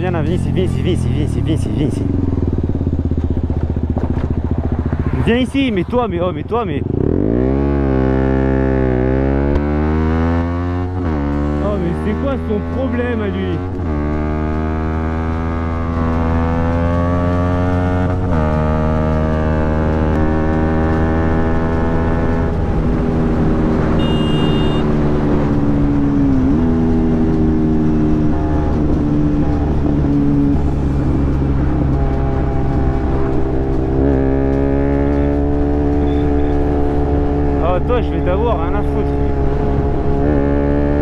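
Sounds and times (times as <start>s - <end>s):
motorcycle engine running: 0.0s - 41.0s.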